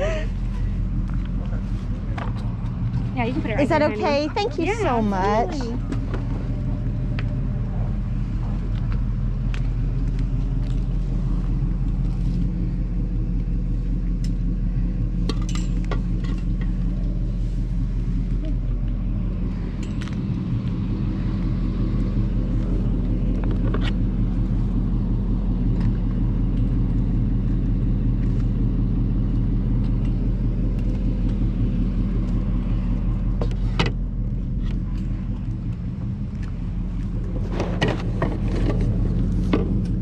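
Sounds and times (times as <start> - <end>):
car engine hum: 0.0 - 40.0
road noise: 0.0 - 40.0.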